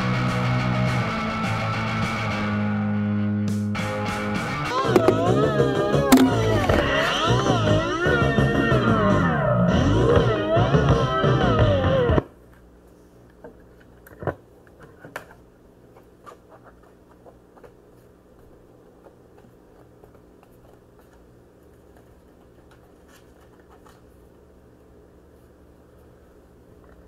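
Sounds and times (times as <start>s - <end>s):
music: 0.0s - 12.2s
faint steady hum and hiss: 12.2s - 27.0s.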